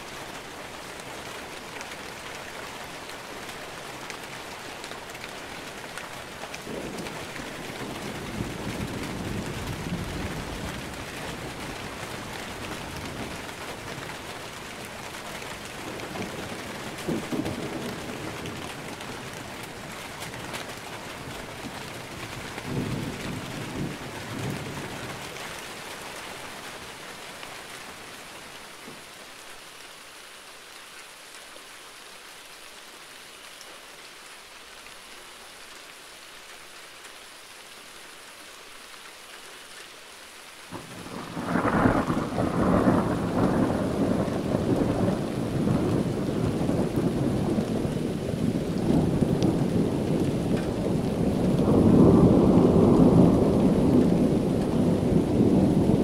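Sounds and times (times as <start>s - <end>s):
steady rain: 0.0s - 56.0s
rolling thunder: 40.7s - 56.0s.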